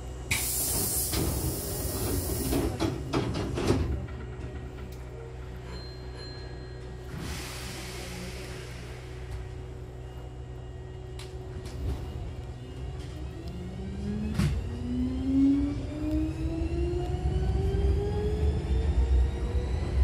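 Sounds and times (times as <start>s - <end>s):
train motor whine rising: 7.1s - 20.0s.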